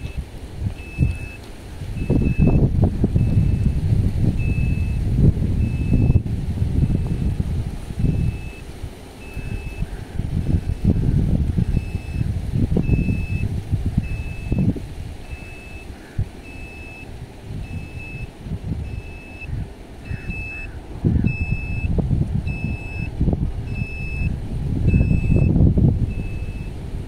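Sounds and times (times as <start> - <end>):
truck reversing alarm beeping: 0.0 - 7.4, 8.0 - 10.9, 11.6 - 26.8
low rumble: 0.0 - 8.6.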